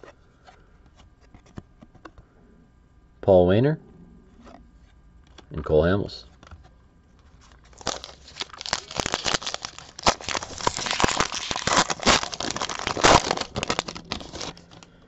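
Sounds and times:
foil wrapper crinkling and tearing: 7.4 - 14.9.

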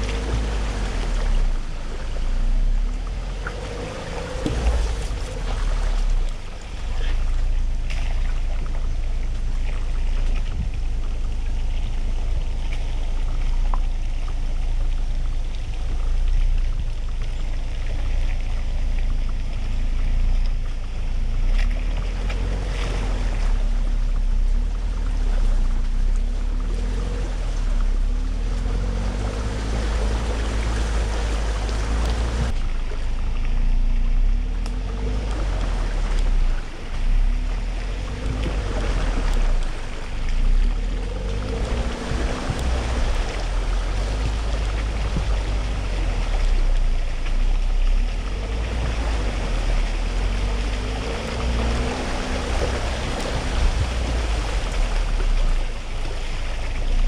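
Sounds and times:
truck engine revving: 0.0 - 8.0, 21.4 - 55.8.

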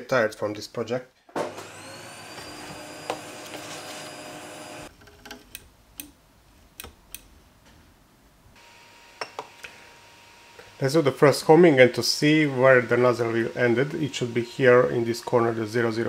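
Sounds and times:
power tool motor running: 1.4 - 4.9
sharp clicks and taps: 5.2 - 7.3.

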